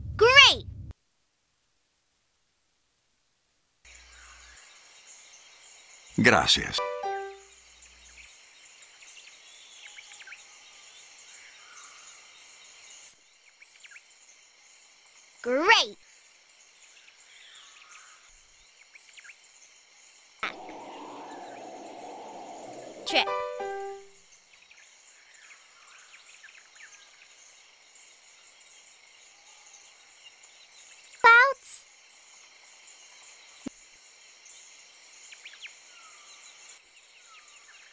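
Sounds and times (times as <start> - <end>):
insects chirping: 20.4 - 24.1.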